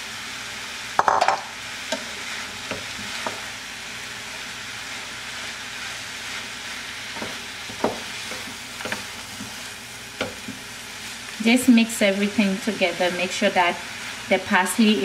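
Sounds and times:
vegetables sizzling in a pan: 0.0 - 15.0
wooden spoon knocking a pan: 1.0 - 3.4, 7.2 - 9.5, 10.2 - 10.6.

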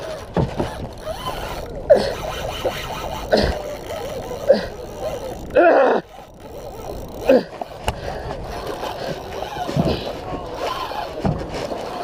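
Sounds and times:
man groaning with effort: 3.3 - 4.9, 5.5 - 6.1, 7.2 - 7.6.

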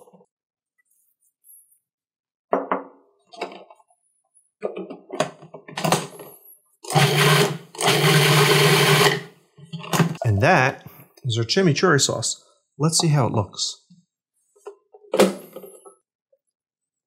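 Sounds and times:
food processor motor whirring: 6.8 - 9.3.

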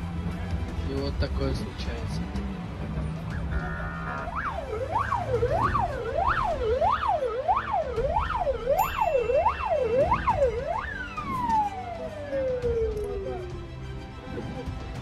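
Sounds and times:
siren sweeping up and down: 3.5 - 13.6.

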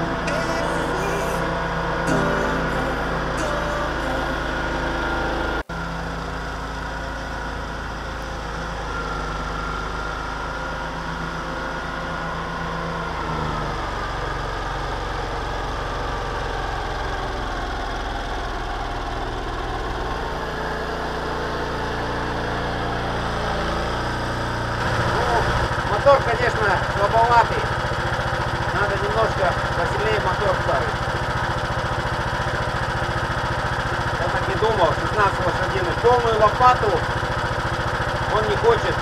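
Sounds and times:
small engine running steadily: 4.4 - 39.0.

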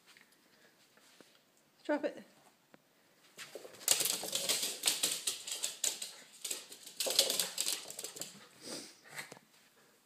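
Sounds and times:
dog claws clicking on tile: 3.5 - 8.5.

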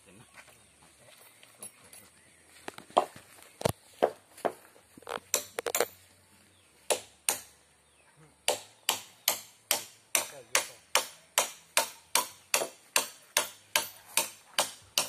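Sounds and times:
hammer striking timber: 5.3 - 5.9, 6.9 - 7.6, 8.4 - 15.0.

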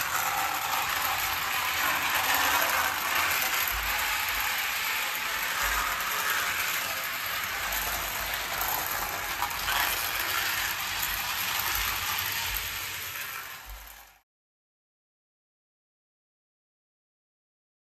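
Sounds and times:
toy train whirring and rattling: 0.0 - 14.2.

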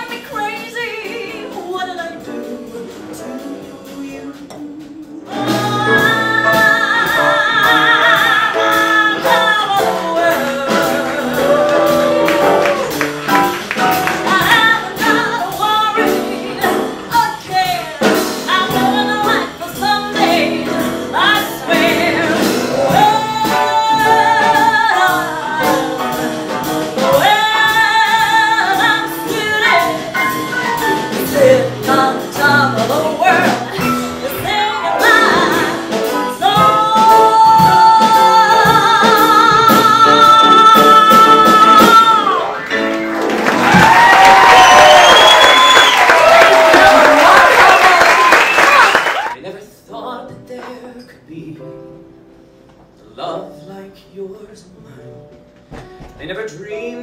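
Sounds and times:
woman singing with vibrato: 0.0 - 13.0, 13.8 - 42.8
grand piano accompaniment: 0.0 - 57.0.

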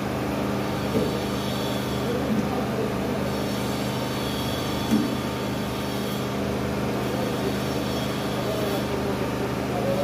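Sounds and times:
low mechanical hum of machine: 0.0 - 10.0.

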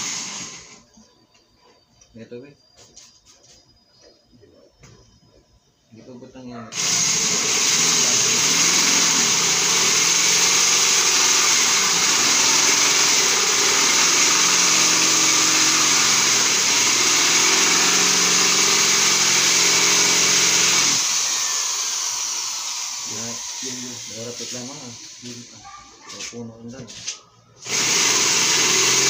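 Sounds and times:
electric drill whirring: 0.0 - 0.9, 6.7 - 25.5, 27.6 - 29.0.

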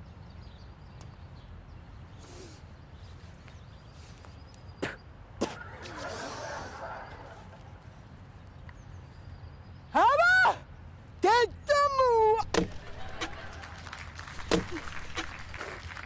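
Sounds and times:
dry twigs snapping: 12.4 - 16.0
leaves rustling: 12.4 - 16.0.

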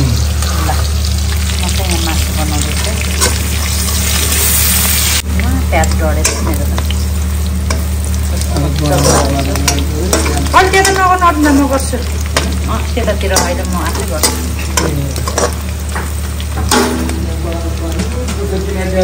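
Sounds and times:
meat sizzling in hot oil: 0.0 - 19.0
metal spatula scraping wok: 2.8 - 5.2, 8.8 - 17.3.

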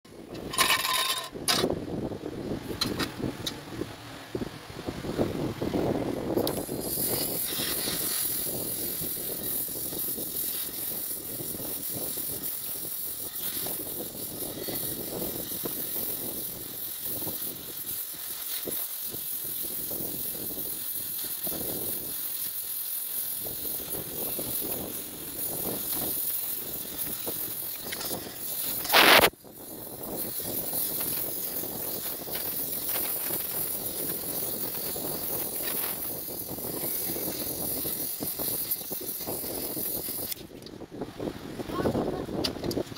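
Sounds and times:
welding torch flame hissing: 5.0 - 42.9
loud burst of noise: 23.5 - 40.4.

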